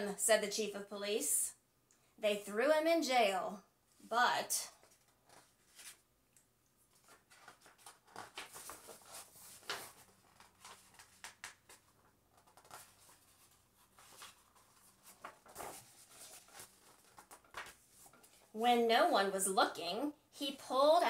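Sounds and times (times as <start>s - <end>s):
paper pages rustling: 4.7s - 6.1s, 6.9s - 18.6s.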